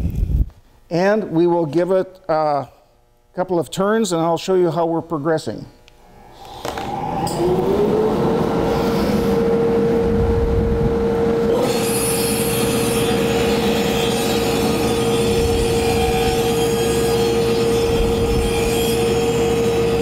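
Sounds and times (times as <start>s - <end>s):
table saw motor whine: 6.1s - 20.0s
saw blade cutting wood: 11.5s - 20.0s.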